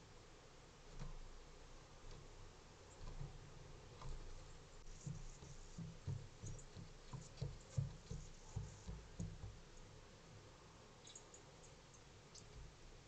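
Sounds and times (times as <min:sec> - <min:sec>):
crow thumping on wooden railing: 0:03.0 - 0:09.7.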